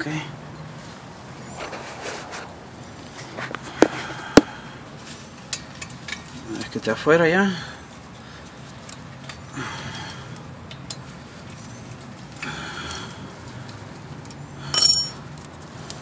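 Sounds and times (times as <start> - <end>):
loud metallic clink: 14.7 - 15.2.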